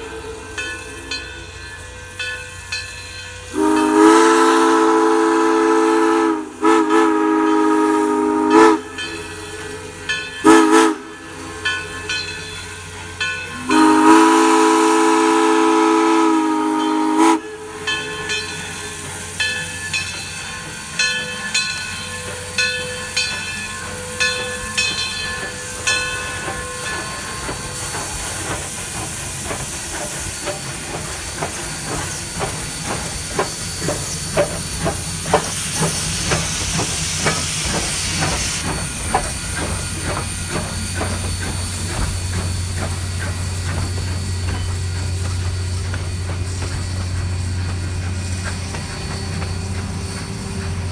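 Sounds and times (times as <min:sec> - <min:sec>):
steam hiss: 0:00.0 - 0:50.9
train wheels clicking on rails: 0:00.0 - 0:50.9
steam whistle blowing: 0:03.4 - 0:11.6, 0:13.5 - 0:18.0.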